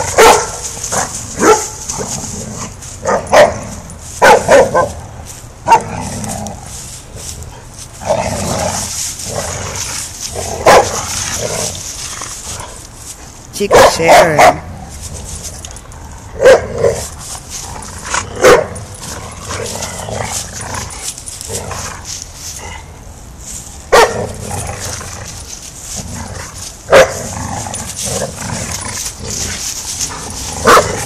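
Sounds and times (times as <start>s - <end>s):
dogs barking: 0.0s - 2.2s, 3.0s - 5.0s, 5.6s - 6.0s, 10.4s - 11.6s, 13.6s - 14.7s, 16.4s - 17.1s, 18.4s - 19.6s, 23.9s - 24.3s, 26.9s - 27.3s, 30.6s - 31.0s
scuffling in dry leaves: 0.0s - 31.0s.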